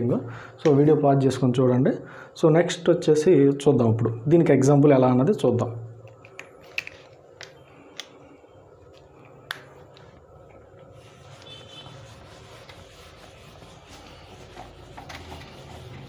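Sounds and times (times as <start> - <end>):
eraser rubbing on whiteboard: 10.8 - 16.0
eraser squeak: 11.3 - 12.1.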